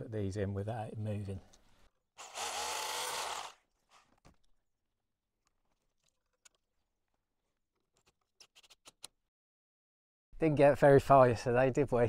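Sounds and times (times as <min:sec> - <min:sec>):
power drill into concrete: 0:02.2 - 0:03.6.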